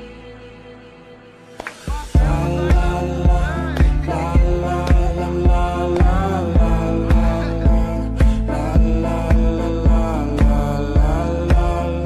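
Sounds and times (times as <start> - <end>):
kick drum beat: 2.2 - 11.8.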